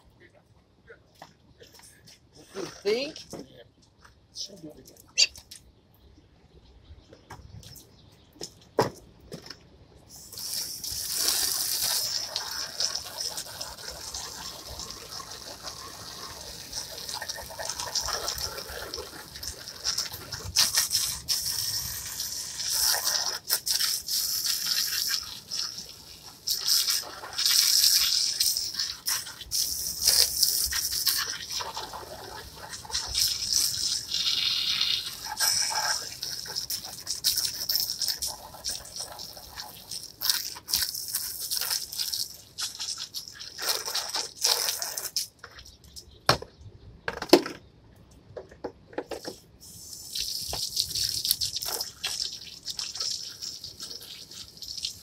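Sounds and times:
hose water spraying on plastic chairs: 0:10.1 - 0:45.7, 0:49.1 - 0:55.0.

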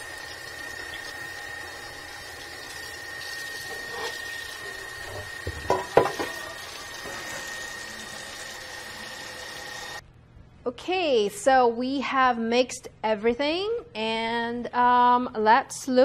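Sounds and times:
kitchenware clinks and knocks: 0:05.1 - 0:06.5.

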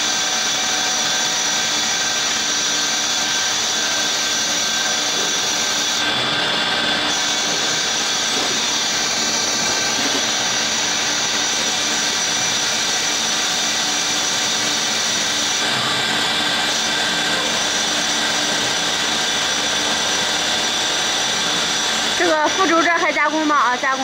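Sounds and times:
lathe machining metal whine: 0:00.0 - 0:24.0.

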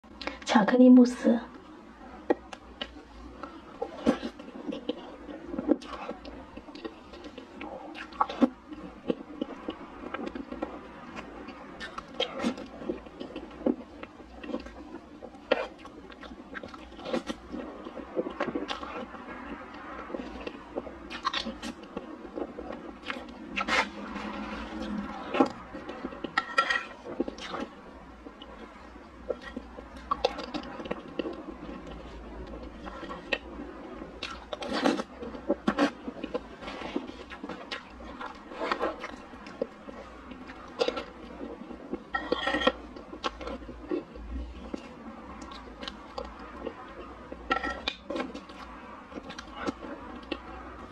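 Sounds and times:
mouth eating soft cake: 0:01.5 - 0:50.9
chewing and lip smacking: 0:02.2 - 0:50.9
wet smacks and chewing clicks: 0:43.0 - 0:50.8.

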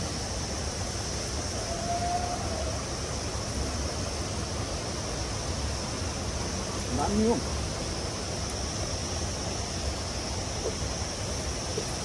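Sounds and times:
rushing hiss: 0:00.0 - 0:12.0.

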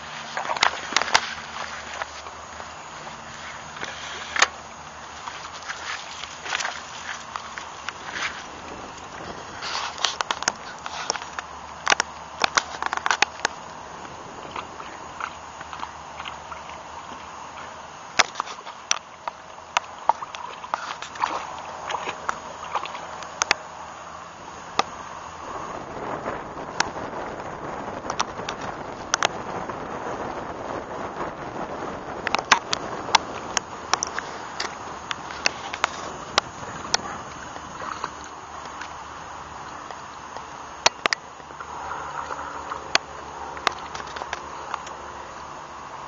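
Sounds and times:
sharp wet clicks: 0:00.0 - 0:23.7, 0:32.2 - 0:45.6
wolf lapping water: 0:00.0 - 0:27.0, 0:32.2 - 0:46.0
water splashing and sloshing: 0:00.0 - 0:46.0.

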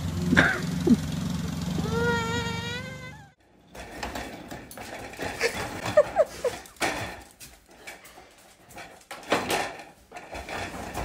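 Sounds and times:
dog whimpering: 0:01.8 - 0:03.4.

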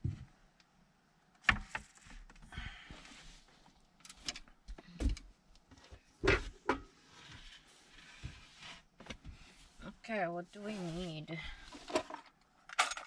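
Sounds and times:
rustling: 0:05.7 - 0:12.3.

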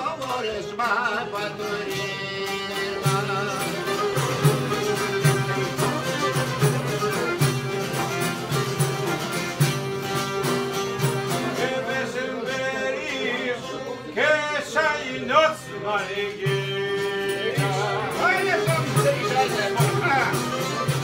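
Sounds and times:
person singing: 0:00.0 - 0:07.7
plucked lutes: 0:00.0 - 0:12.5, 0:16.1 - 0:21.0
frame drum beat: 0:02.9 - 0:11.6, 0:16.5 - 0:21.0.

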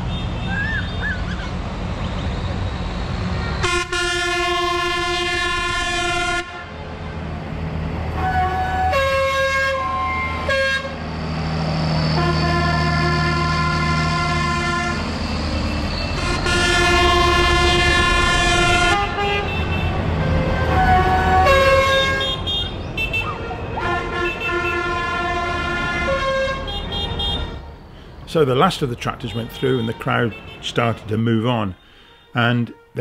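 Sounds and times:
vehicle engines rumbling: 0:00.0 - 0:33.0
vehicle horn long notes: 0:03.5 - 0:06.7, 0:08.2 - 0:11.0, 0:12.2 - 0:15.1, 0:16.1 - 0:27.8, 0:29.3 - 0:30.7, 0:31.8 - 0:33.0.

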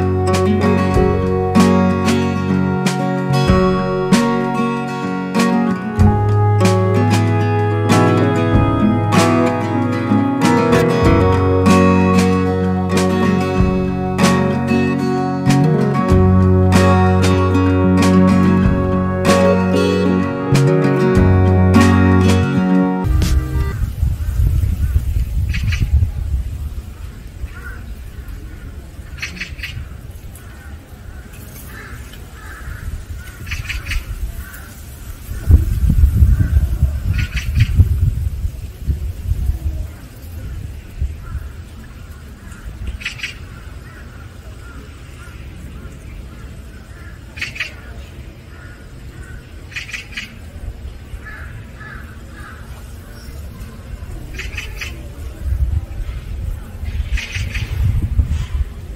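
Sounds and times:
steady low rumble: 0:00.0 - 0:04.8, 0:05.9 - 0:27.4
outdoor background noise: 0:00.0 - 0:58.9
bird calls: 0:42.2 - 0:50.6, 0:51.2 - 0:55.1, 0:56.8 - 0:57.8.

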